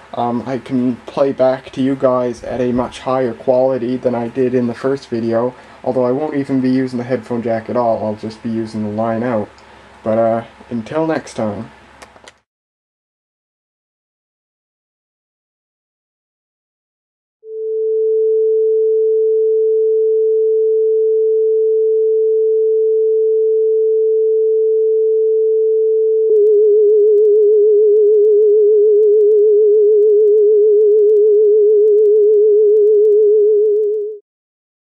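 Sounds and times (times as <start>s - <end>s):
small click: 12.0s - 12.4s
sine test tone: 17.4s - 34.2s.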